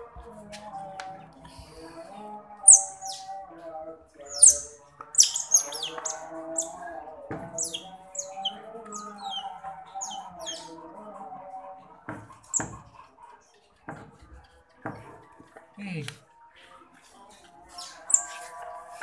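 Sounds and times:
baby otter chirping: 2.7s - 3.3s, 4.2s - 6.8s, 7.6s - 10.7s, 17.9s - 18.4s.

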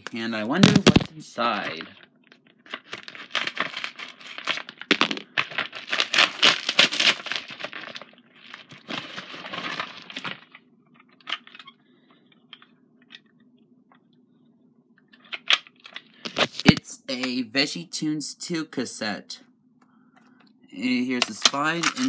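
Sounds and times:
packaging ripping and crinkling: 0.6s - 11.6s, 21.2s - 22.0s.

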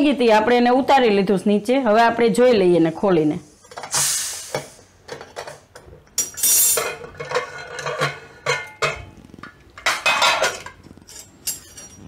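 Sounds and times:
steam hissing: 3.9s - 5.0s
metal lid clanking: 6.2s - 12.0s.

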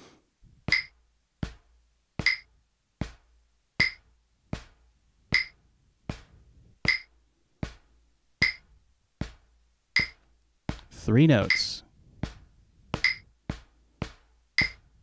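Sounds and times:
drumsticks striking a practice pad: 0.7s - 1.0s, 2.2s - 3.2s, 3.8s - 4.0s, 5.3s - 6.2s, 6.9s - 7.1s, 8.4s - 8.6s, 10.0s - 10.8s, 13.0s - 14.8s
metronome click: 10.0s - 10.2s.

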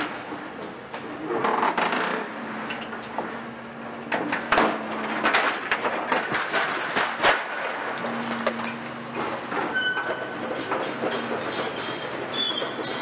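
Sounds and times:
excavator humming: 2.2s - 13.0s
metal and rubble clattering: 4.1s - 13.0s.

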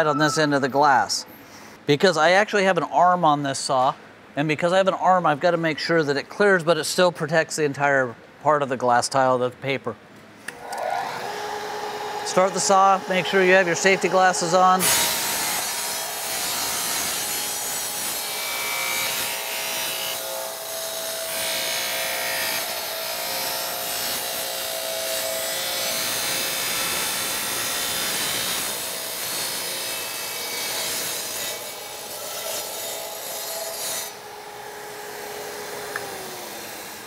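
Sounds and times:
saw motor humming: 10.5s - 37.0s
tile saw cutting glass tile: 10.6s - 34.2s, 35.0s - 37.0s.

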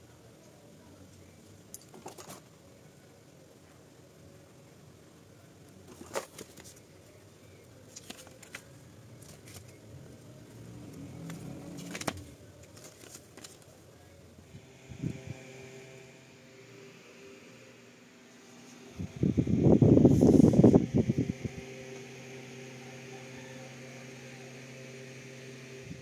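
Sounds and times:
faint steady hum: 0.0s - 26.0s
hands rustling paper and cable: 5.8s - 7.1s, 7.8s - 9.8s, 10.8s - 14.0s.

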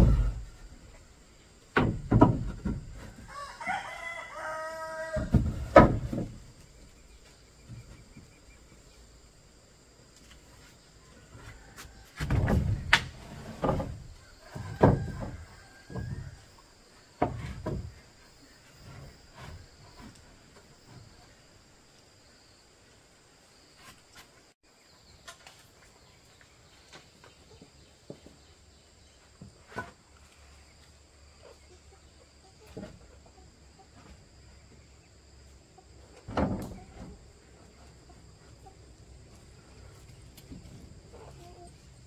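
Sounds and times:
knocks and thumps: 0.0s - 0.6s, 1.7s - 3.3s, 5.2s - 6.6s, 12.2s - 16.4s, 17.2s - 18.2s.

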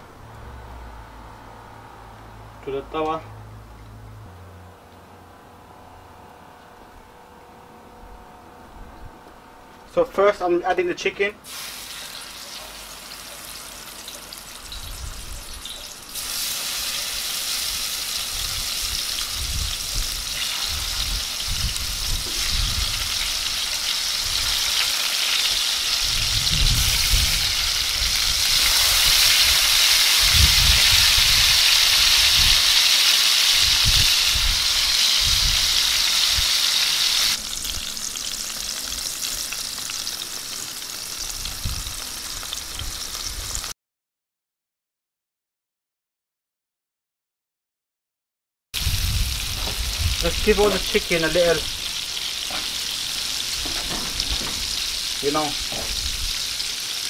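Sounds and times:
chicken sizzling in hot oil: 11.4s - 43.7s, 48.8s - 57.0s.

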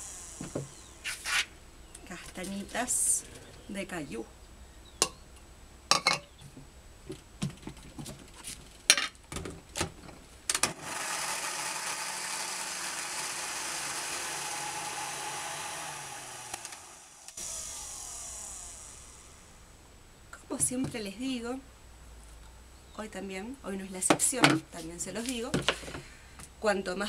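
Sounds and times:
countertop blender running: 0.0s - 1.2s, 10.7s - 19.7s.

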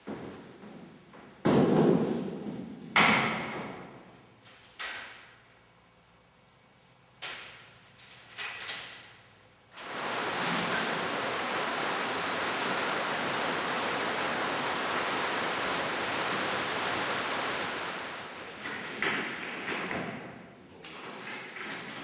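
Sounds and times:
steady loud hiss: 8.4s - 22.0s.

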